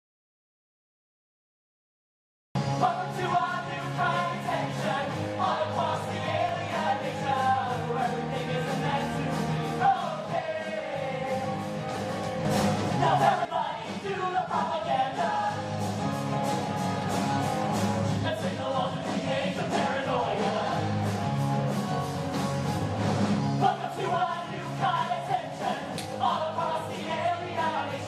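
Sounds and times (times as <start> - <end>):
rock band playing: 2.6 - 26.3
voices singing: 2.8 - 11.9, 12.9 - 15.9, 18.2 - 21.1, 23.6 - 28.0.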